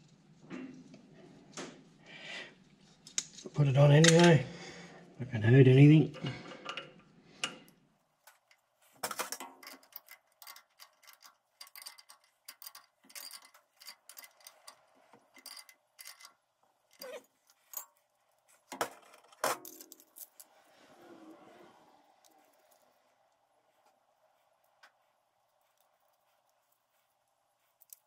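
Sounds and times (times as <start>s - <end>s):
small metallic clicks: 6.7s - 20.5s.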